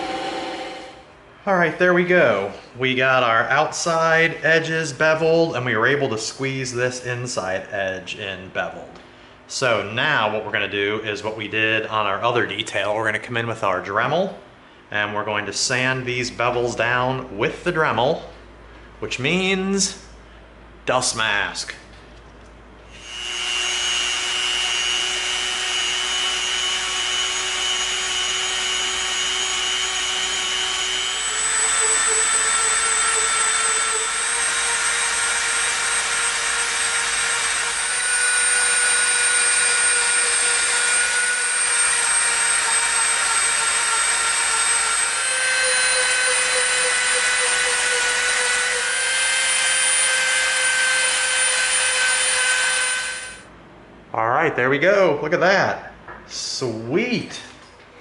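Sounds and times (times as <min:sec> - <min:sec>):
rotary tool sanding whine: 0:00.0 - 0:01.0, 0:22.9 - 0:53.4.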